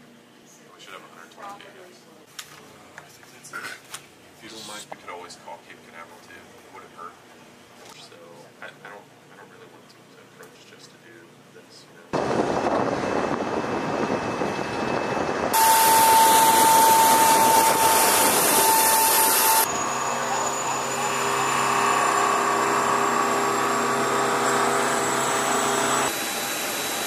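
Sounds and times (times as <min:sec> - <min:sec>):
jet turbine whine and hiss: 0:12.2 - 0:27.0
low humming drone: 0:12.2 - 0:27.0.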